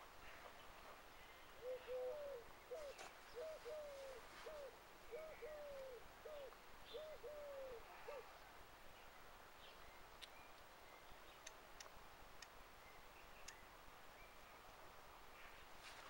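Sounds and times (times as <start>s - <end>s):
pigeon cooing: 1.6s - 8.3s
faint ticks and chirps: 8.0s - 15.8s.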